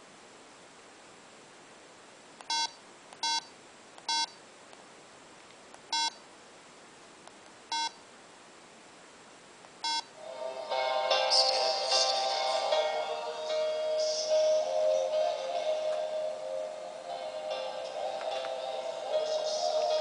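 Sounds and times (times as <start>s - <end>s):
short electronic beeps: 2.5s - 3.5s, 4.1s - 4.4s, 5.9s - 6.2s, 7.7s - 8.0s, 9.8s - 10.1s
song from small speaker: 10.2s - 20.0s.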